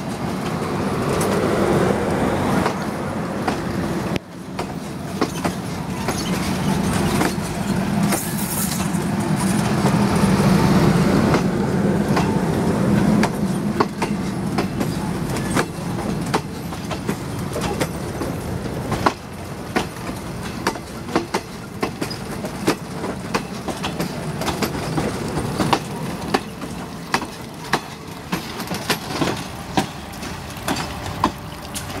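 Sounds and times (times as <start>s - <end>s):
train rumble: 0.0s - 32.0s
train wheels clicking over rail joints: 0.0s - 32.0s.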